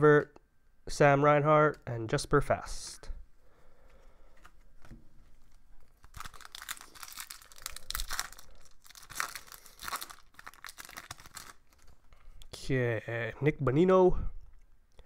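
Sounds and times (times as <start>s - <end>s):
foil wrapper crinkling and tearing: 5.9s - 12.0s.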